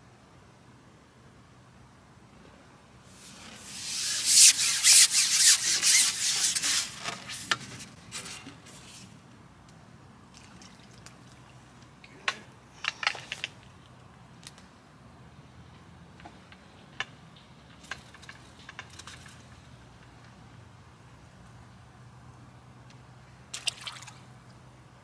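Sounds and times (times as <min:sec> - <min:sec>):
fishing pole rasping rub: 0:03.2 - 0:07.6.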